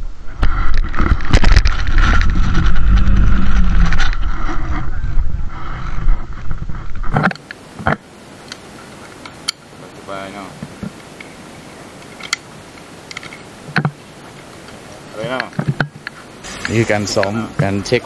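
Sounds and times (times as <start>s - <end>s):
zipline trolley rumbling on cable: 0.9s - 6.4s.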